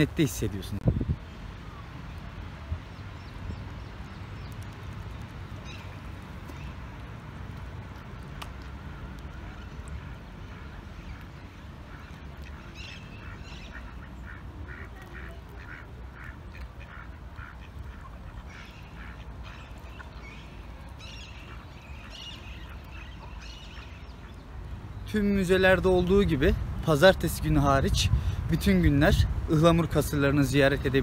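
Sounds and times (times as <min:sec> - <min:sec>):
ducks quacking: 0:10.4 - 0:20.1.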